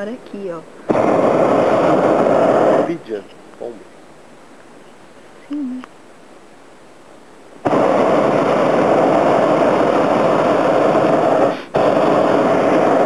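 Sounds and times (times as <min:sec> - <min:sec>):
propane burner blast: 0:00.0 - 0:03.8, 0:07.6 - 0:13.0.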